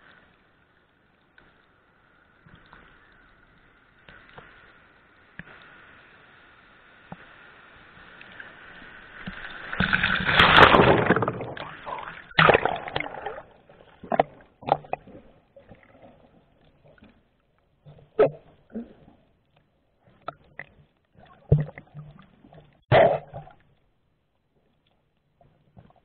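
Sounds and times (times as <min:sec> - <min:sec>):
water rushing and splashing: 0:07.0 - 0:19.1.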